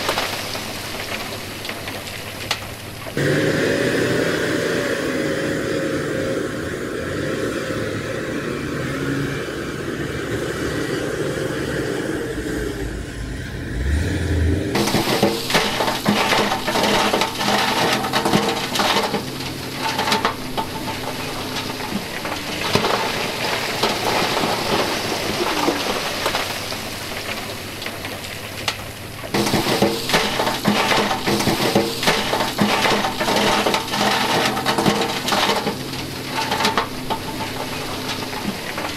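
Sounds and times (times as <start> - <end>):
heavy diesel engine running: 0.0 - 38.9
rock clattering and grinding: 14.7 - 38.9.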